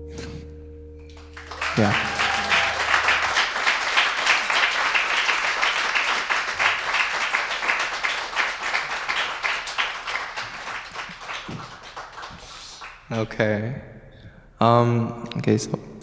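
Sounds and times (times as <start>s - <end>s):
audience applauding: 1.1s - 13.2s.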